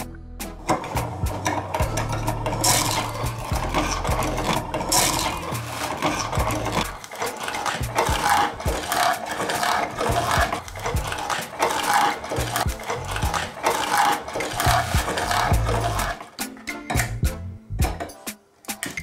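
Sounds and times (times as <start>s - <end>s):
music with repeating beat: 0.0s - 6.8s, 16.4s - 19.0s.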